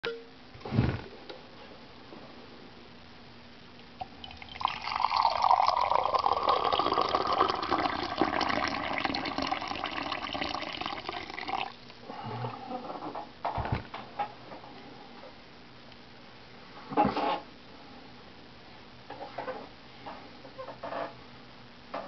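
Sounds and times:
liquid pouring into ceramic mug: 0:04.0 - 0:11.7.

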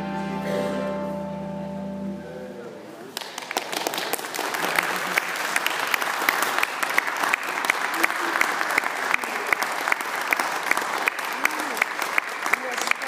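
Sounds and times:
close sharp claps: 0:03.1 - 0:13.0
group applause: 0:03.1 - 0:13.0.

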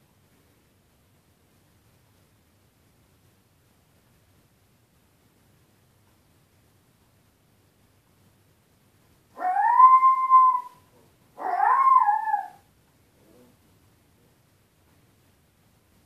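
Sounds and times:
puppy howling: 0:09.4 - 0:12.6.

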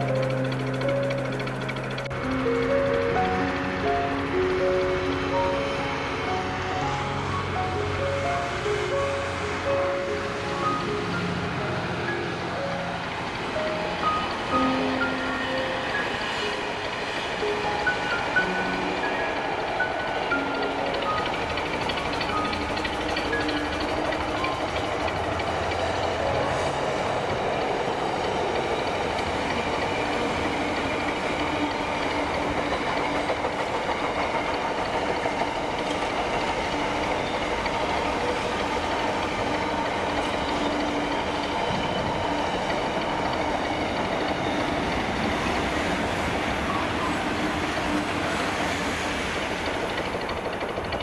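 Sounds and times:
freight train wagons rolling: 0:00.0 - 0:51.0.

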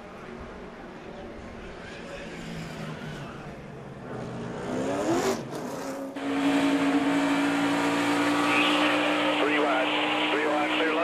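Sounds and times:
stock car engine revving: 0:02.2 - 0:11.0
engine running loud and steady: 0:06.2 - 0:11.0.

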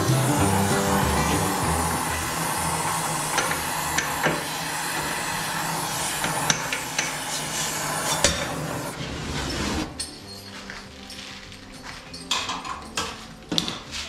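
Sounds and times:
gas torch hissing: 0:00.0 - 0:09.9
metal clinks and knocks: 0:10.0 - 0:13.9.

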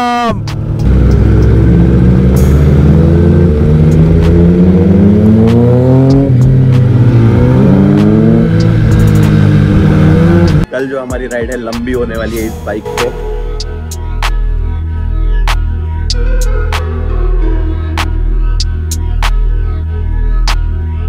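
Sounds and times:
motorcycle engine accelerating: 0:00.4 - 0:10.7.

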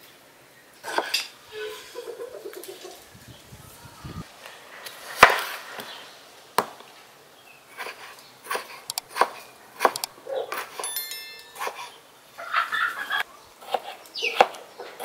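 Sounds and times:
knife slicing on wooden board: 0:07.8 - 0:10.8.

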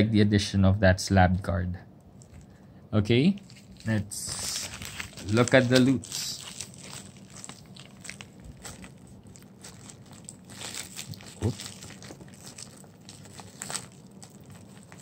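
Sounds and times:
plastic mailer crinkling: 0:03.4 - 0:15.0.

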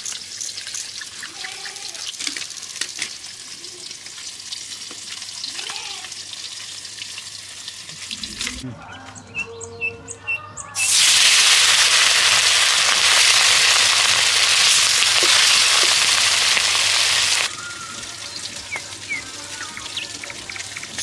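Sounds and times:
food sizzling in hot oil: 0:00.0 - 0:08.6, 0:10.8 - 0:21.0
bird chirps: 0:08.2 - 0:10.9.

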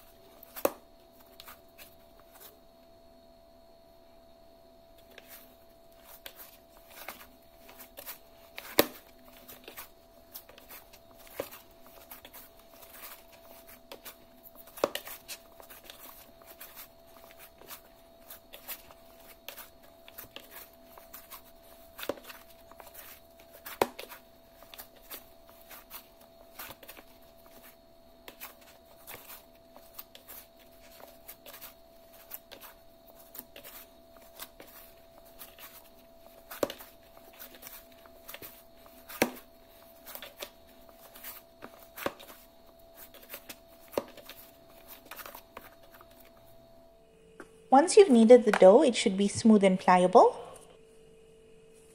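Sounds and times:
hands kneading dough: 0:00.0 - 0:02.7, 0:05.0 - 0:46.6.

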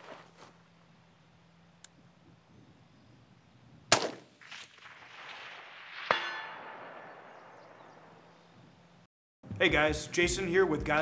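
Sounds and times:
rifle shot echoing: 0:03.9 - 0:08.6
sharp metallic clang ringing: 0:06.0 - 0:07.7.

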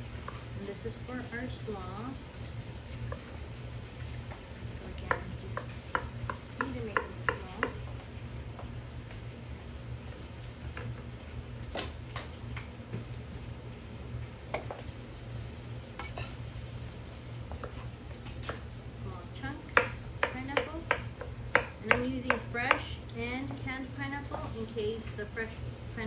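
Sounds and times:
knife chopping pineapple: 0:19.8 - 0:22.9.

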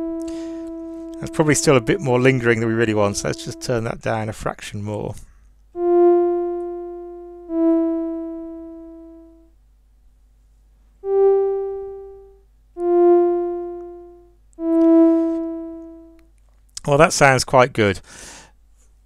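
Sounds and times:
synthesizer single notes: 0:00.0 - 0:03.9, 0:05.8 - 0:09.4, 0:11.0 - 0:16.2.

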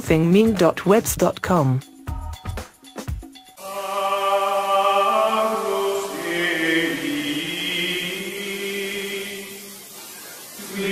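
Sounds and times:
choral voices chanting: 0:03.6 - 0:10.0, 0:10.6 - 0:10.9.

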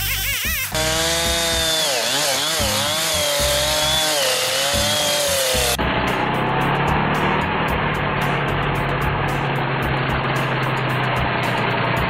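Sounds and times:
chainsaw cutting a log: 0:00.0 - 0:05.8
music: 0:00.0 - 0:12.0.

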